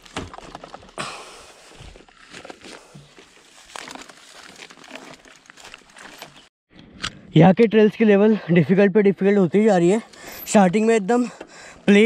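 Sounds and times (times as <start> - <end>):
rustling in dry grass: 0.0 - 6.5.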